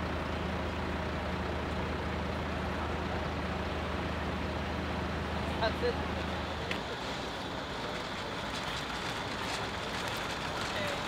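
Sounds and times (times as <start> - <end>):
heavy engine idling: 0.0 - 11.0.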